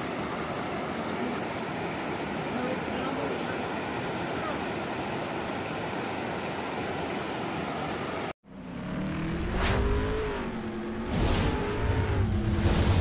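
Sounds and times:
car engine revving: 8.4 - 13.0
whoosh: 9.3 - 13.0.

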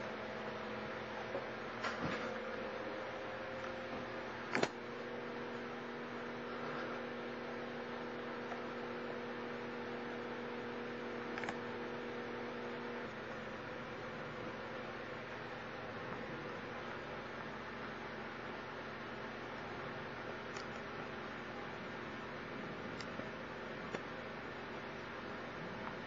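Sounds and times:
electrical hum: 0.0 - 26.0
short clicks: 4.5 - 4.8.

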